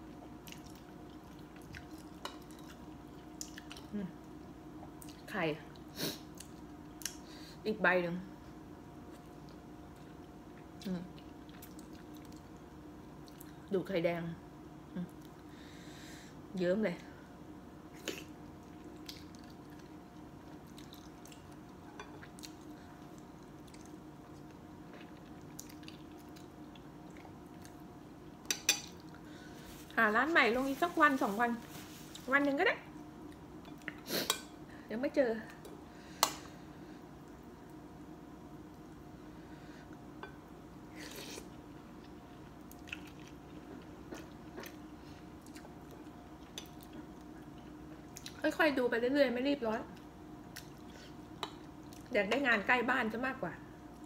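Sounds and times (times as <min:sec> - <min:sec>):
person chewing wetly: 0:00.4 - 0:03.9, 0:09.4 - 0:12.6, 0:18.0 - 0:27.8, 0:41.1 - 0:48.4, 0:50.4 - 0:52.1.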